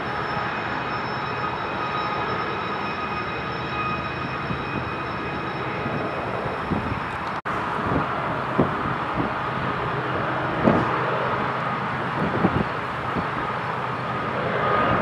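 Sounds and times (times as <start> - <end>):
faint high steady tone: 0.0 - 7.4
freight train rumbling: 0.0 - 15.0.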